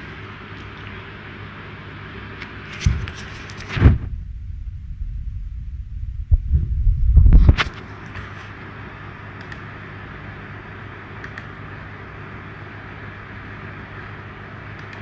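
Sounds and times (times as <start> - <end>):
phone handling thumps and rumbles: 2.8 - 4.4, 6.2 - 7.8.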